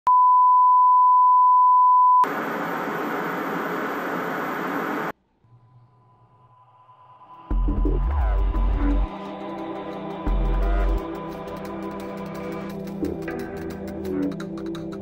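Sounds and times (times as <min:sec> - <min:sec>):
tv static hiss: 0:02.2 - 0:05.2.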